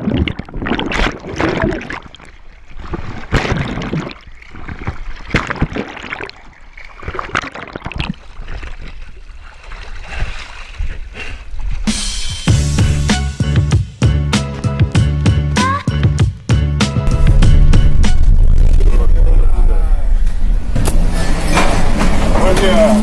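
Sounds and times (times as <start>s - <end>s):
water splashing and gurgling: 0.0s - 12.5s.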